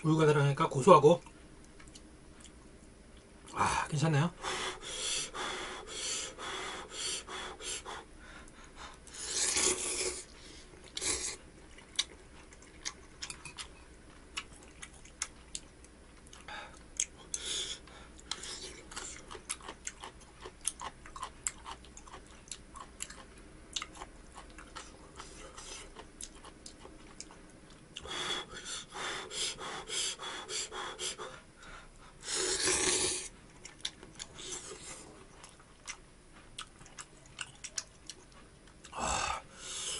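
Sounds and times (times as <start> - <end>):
person slurping noodles: 9.2 - 10.3, 11.0 - 11.4, 32.2 - 33.3
chewing: 9.4 - 17.4, 18.2 - 28.1, 33.2 - 39.0.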